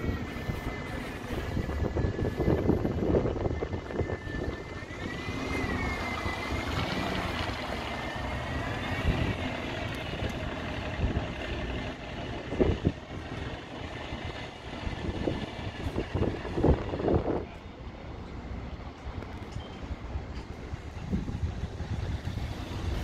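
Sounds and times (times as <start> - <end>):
high-pitched whine: 0.0 - 11.3
vehicle engine rumble: 0.0 - 23.0.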